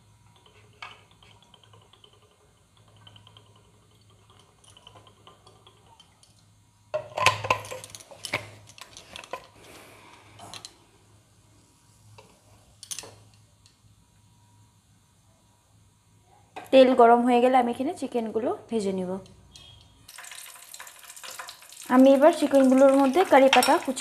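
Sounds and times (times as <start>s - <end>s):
pans clattering and clinking: 7.0s - 9.5s
oil trickling into pan: 20.1s - 24.0s.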